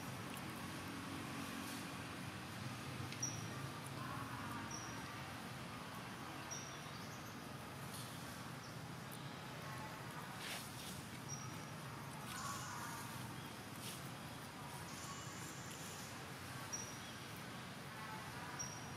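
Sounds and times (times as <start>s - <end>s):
soft rustle: 10.0s - 16.5s.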